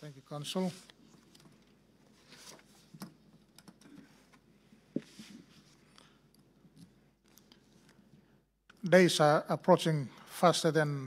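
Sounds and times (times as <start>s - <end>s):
soft clicks and rustles: 0.8s - 8.8s.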